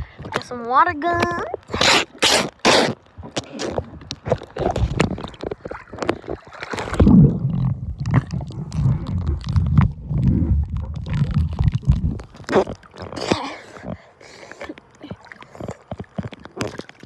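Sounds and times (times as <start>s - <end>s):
pool water sloshing and gurgling: 1.0s - 17.0s
underwater clicks: 1.1s - 17.0s
muffled underwater rumble: 3.4s - 14.1s.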